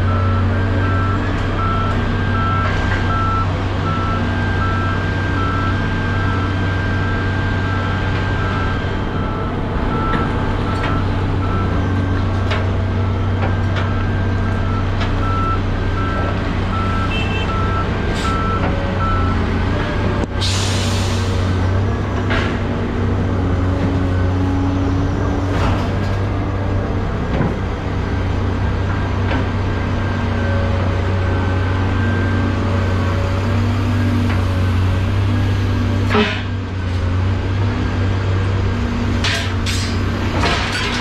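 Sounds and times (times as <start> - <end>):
reversing alarm beeping: 0.0 - 19.5, 31.3 - 34.0
engine running: 0.0 - 41.0.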